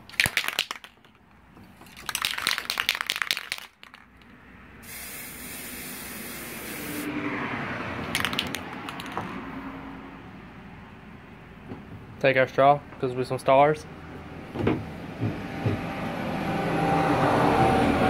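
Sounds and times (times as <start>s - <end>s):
spray can rattling: 0.0s - 7.0s, 8.0s - 9.3s
spray nozzle hissing: 4.8s - 7.1s.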